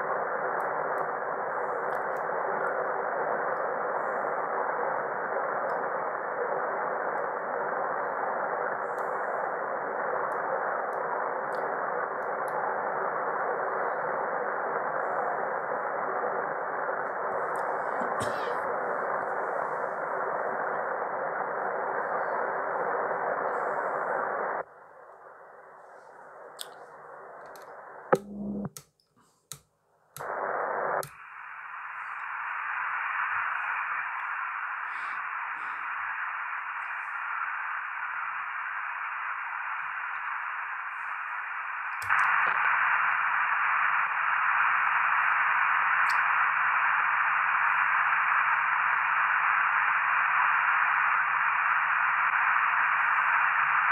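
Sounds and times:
radio receiver hiss: 0:00.0 - 0:53.9
sharp clicks: 0:27.4 - 0:30.4, 0:42.0 - 0:42.5.

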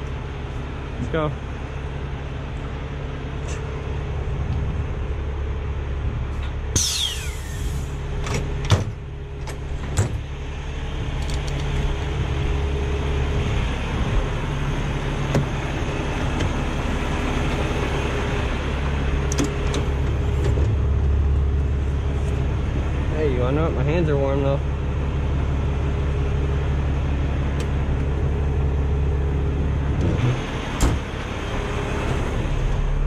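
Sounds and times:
diesel truck engine idling: 0:00.0 - 0:33.0
air hiss: 0:06.7 - 0:08.0.

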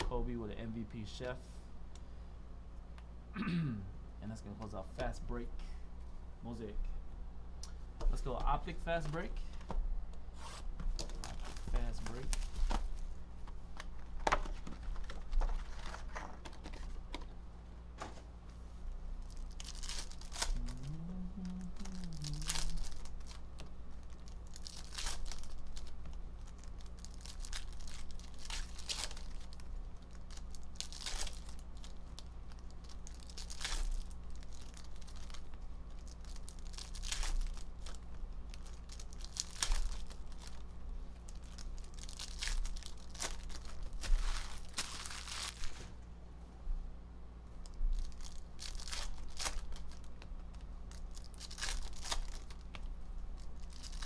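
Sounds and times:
low hum: 0:05.3 - 0:54.0
wrappers tearing and crinkling: 0:10.4 - 0:13.0, 0:14.8 - 0:17.0, 0:19.2 - 0:45.9, 0:47.6 - 0:54.0.

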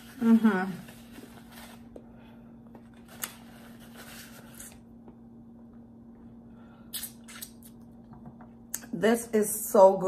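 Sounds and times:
steady low hum: 0:00.0 - 0:10.0
closed-mouth chewing: 0:06.9 - 0:07.8
wet mouth clicks: 0:06.9 - 0:07.9.

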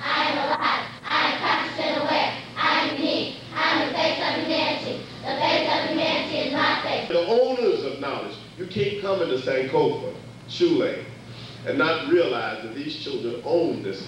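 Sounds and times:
children chanting in unison: 0:00.0 - 0:07.1.

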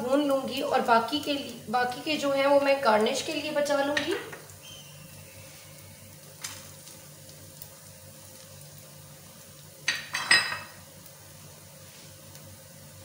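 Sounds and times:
nuts sizzling in ghee: 0:00.0 - 0:13.0
clatter against pan: 0:09.9 - 0:10.8.

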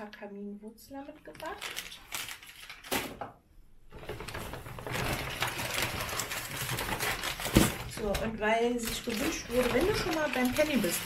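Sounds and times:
shopping bag rustling: 0:04.0 - 0:11.0.

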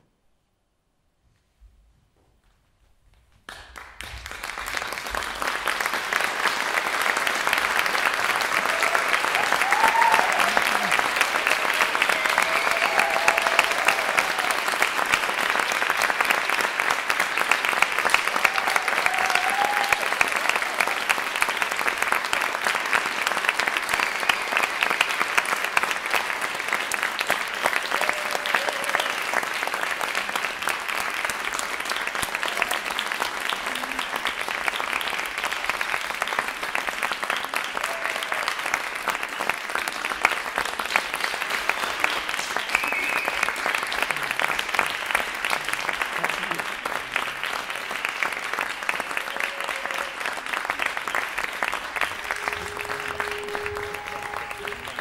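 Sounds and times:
audience applauding: 0:03.5 - 0:55.0
crowd cheering: 0:04.3 - 0:55.0.

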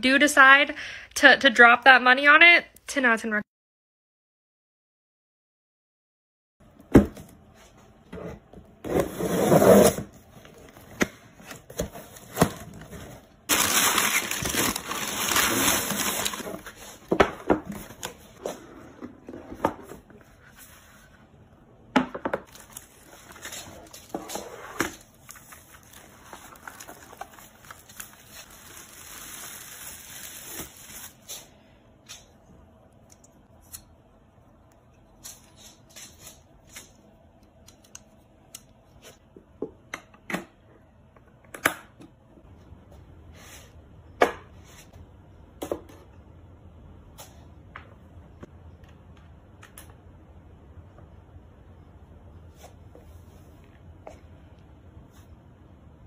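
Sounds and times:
cardboard box torn open: 0:13.5 - 0:16.4
packaging crinkling: 0:13.5 - 0:16.4, 0:25.1 - 0:31.4.

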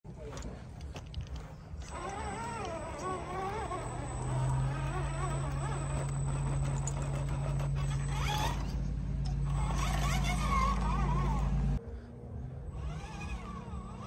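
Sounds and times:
steady low hum: 0:00.1 - 0:14.0
toy truck electric motor whining: 0:01.2 - 0:11.8, 0:12.7 - 0:14.0.

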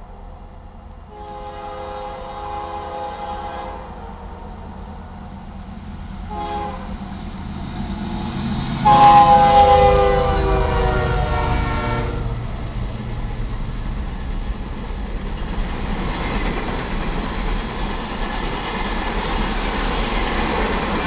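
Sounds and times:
diesel locomotive rumble: 0:00.0 - 0:21.0
locomotive horn blasts: 0:01.1 - 0:04.0, 0:06.3 - 0:06.9, 0:08.8 - 0:12.3.

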